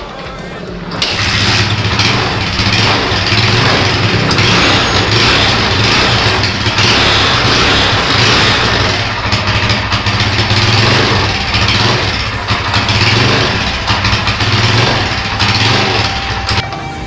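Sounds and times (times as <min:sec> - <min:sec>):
motorcycle engine idling: 0:01.0 - 0:16.8.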